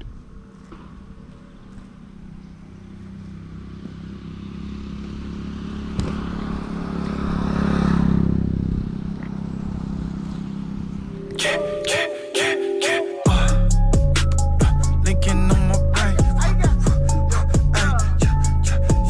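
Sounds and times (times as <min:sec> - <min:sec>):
vehicle engine running: 0:00.0 - 0:11.6, 0:13.3 - 0:19.0.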